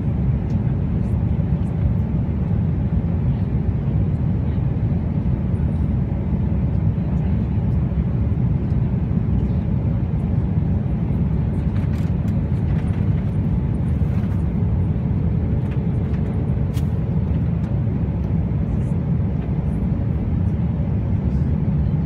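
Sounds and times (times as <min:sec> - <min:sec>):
jet cabin engine roar: 0:00.0 - 0:22.0.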